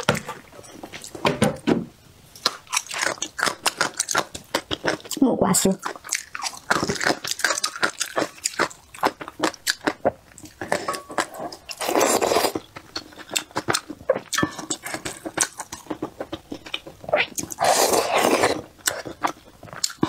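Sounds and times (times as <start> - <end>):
wet chewing and lip smacking: 5.8 - 20.0
loud slurp: 17.6 - 18.6.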